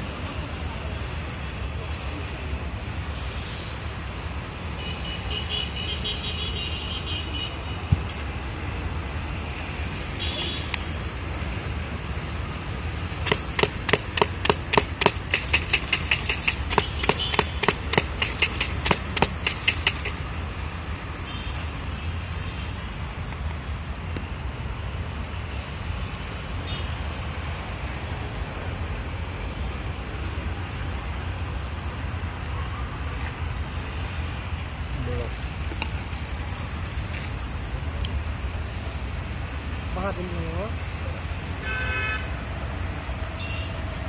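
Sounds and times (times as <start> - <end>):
street traffic rumble: 0.0 - 44.0
sharp rattling knocks in plastic cup: 13.2 - 20.2.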